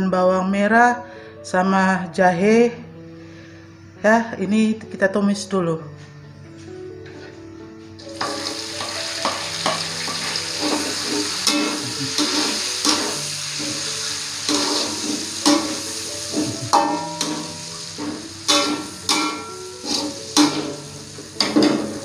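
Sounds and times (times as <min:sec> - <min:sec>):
food sizzling in hot oil: 0:08.0 - 0:22.0
metal spatula scraping wok: 0:08.2 - 0:22.0.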